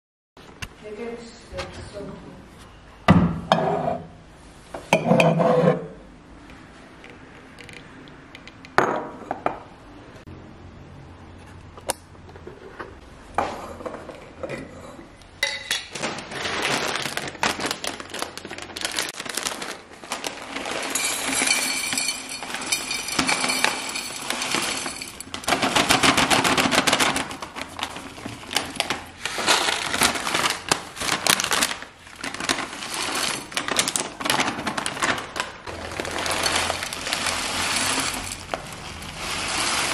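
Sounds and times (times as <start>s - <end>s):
cereal rattling into glass jar: 16.3s - 30.7s, 32.3s - 35.0s, 35.8s - 39.9s.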